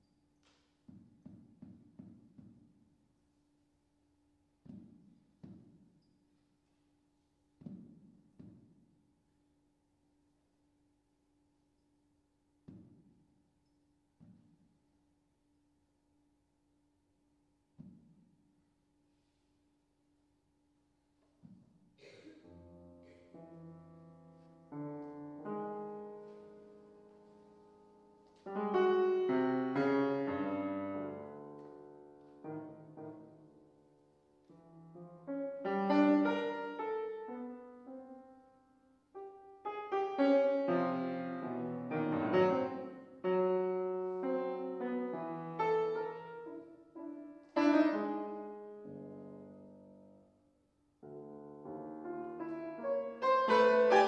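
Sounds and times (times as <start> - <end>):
grand piano chords: 22.0 - 50.4, 51.0 - 54.0.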